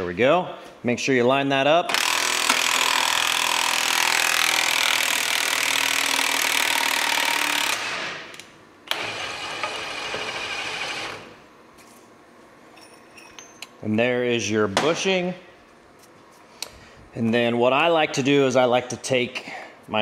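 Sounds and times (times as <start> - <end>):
impact wrench running: 1.9 - 11.4.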